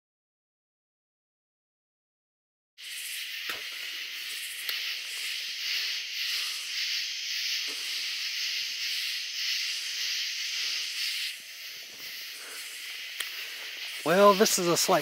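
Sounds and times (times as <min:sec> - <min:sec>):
insect chorus buzzing: 0:02.8 - 0:15.0.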